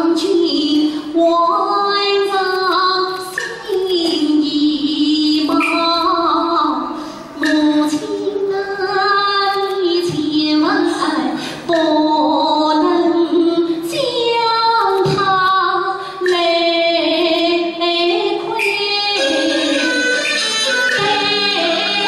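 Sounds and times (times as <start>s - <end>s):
woman singing opera aria: 0.0s - 22.0s
singer breathing: 6.9s - 7.4s, 11.4s - 11.7s.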